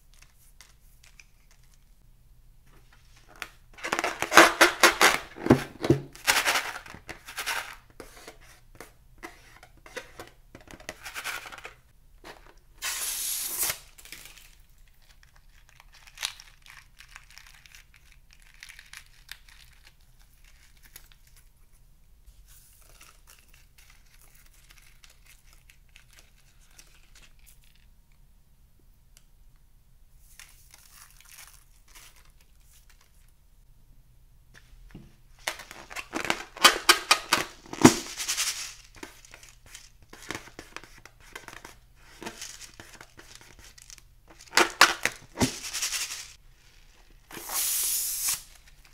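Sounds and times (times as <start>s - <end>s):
beads sprinkling: 38.0s - 39.9s.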